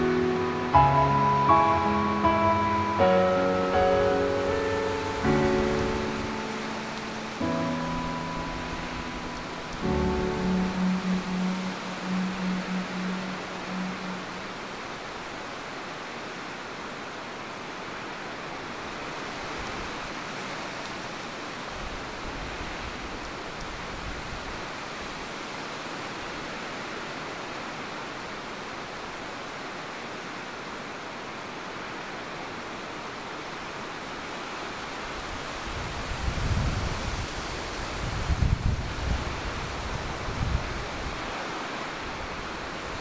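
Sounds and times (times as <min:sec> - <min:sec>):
rushing wind: 0:00.0 - 0:43.0
wind buffeting microphone: 0:35.6 - 0:41.3.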